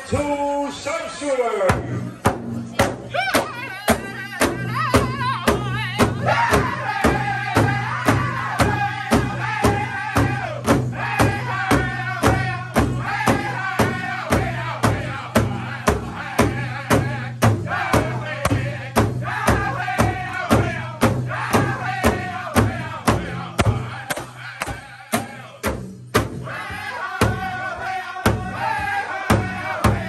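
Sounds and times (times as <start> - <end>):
large drum beat: 1.6 - 30.0
group singing: 2.8 - 30.0.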